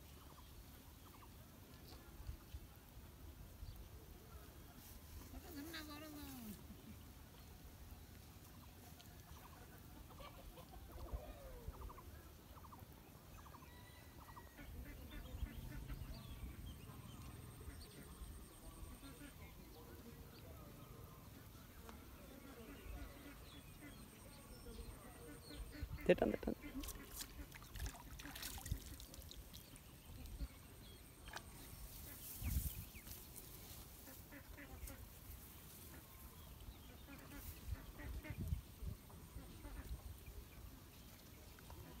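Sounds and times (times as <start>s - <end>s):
fowl clucking: 10.0s - 11.2s.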